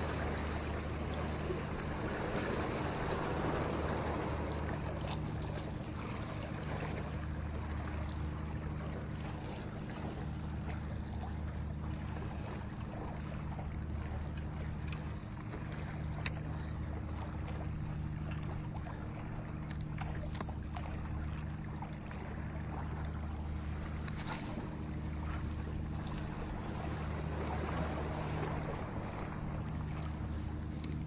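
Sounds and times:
steady low hum: 0.0s - 31.0s
faint light clicks: 14.3s - 16.5s, 30.8s - 31.0s.

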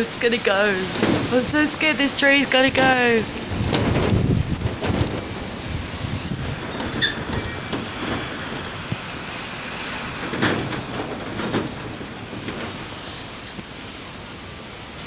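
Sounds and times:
storm wind rushing through trees: 0.0s - 15.0s.

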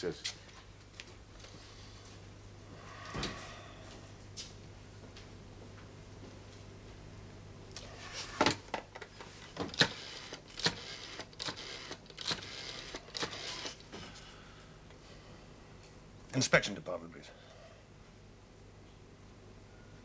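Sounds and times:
rotary telephone dial whirring: 9.7s - 13.8s.

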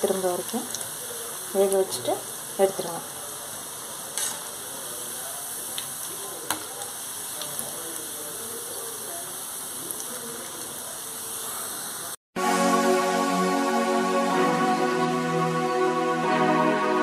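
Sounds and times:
food deep-frying in oil: 0.0s - 12.2s
electronic music: 12.4s - 17.0s.

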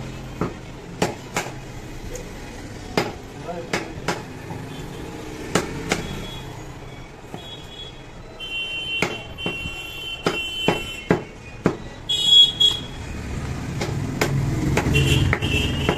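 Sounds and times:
cleaver chopping bone on wood: 0.4s - 1.6s, 2.9s - 4.3s, 5.5s - 6.1s, 9.0s - 11.8s, 13.7s - 15.9s.

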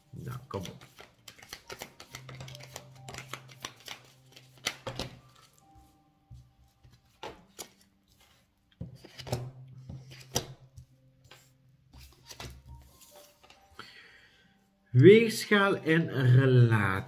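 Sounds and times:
cards being shuffled: 0.4s - 5.6s, 6.8s - 13.6s.

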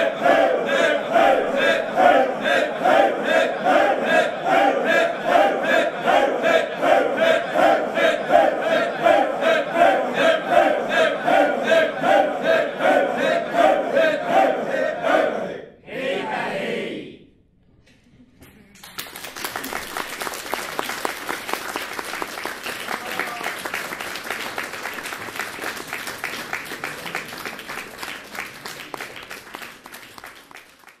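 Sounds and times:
male choir shouting: 0.0s - 17.1s
audience applause: 18.7s - 31.0s.

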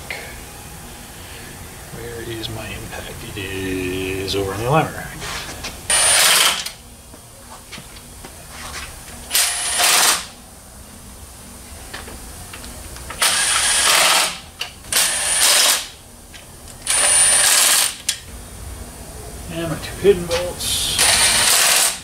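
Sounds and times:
workshop background noise: 0.0s - 11.0s, 11.6s - 22.0s
power tool running bolts: 5.9s - 6.8s, 9.3s - 10.4s, 13.1s - 16.0s, 16.7s - 18.2s, 20.9s - 22.0s.

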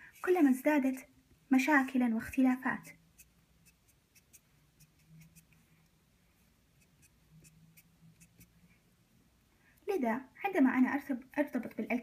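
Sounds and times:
marker scratching on paper: 1.8s - 5.6s, 6.4s - 8.6s.

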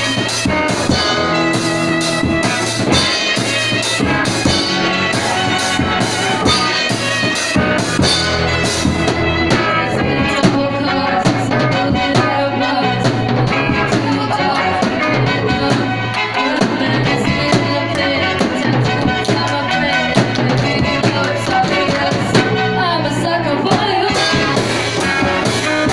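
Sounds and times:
live band playing: 0.0s - 25.9s
girls singing: 3.2s - 8.1s, 9.0s - 25.9s.

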